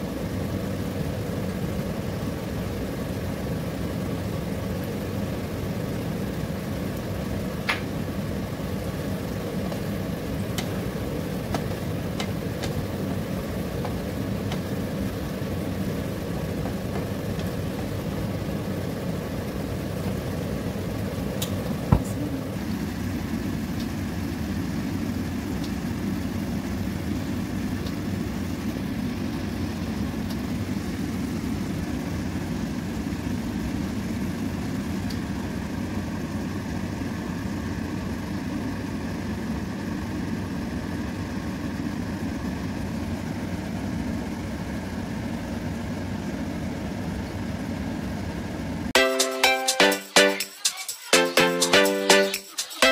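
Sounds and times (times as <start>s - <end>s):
stove low rumble: 0.0s - 37.5s.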